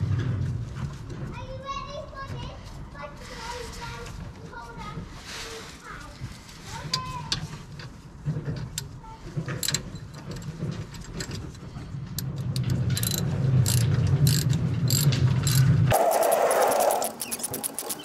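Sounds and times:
ratchet wrench clicking: 12.5s - 18.0s.

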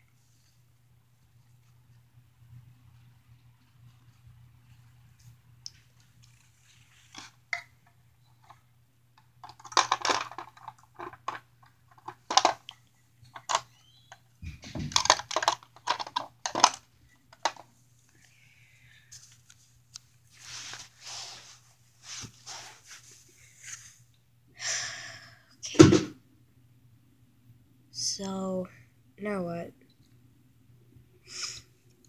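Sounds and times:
plastic toy pieces clicking: 9.4s - 12.7s, 15.0s - 17.6s.

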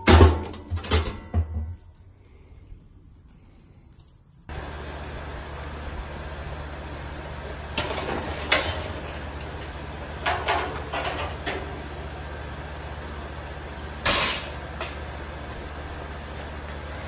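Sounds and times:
charcoal clattering against steel: 0.0s - 1.8s, 7.4s - 11.9s, 14.0s - 15.1s
steady low hum: 0.0s - 17.0s.

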